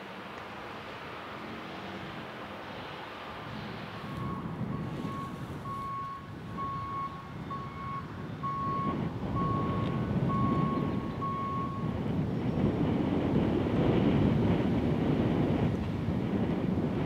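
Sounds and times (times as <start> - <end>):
vehicle backup alarm beeping: 4.0 - 12.0.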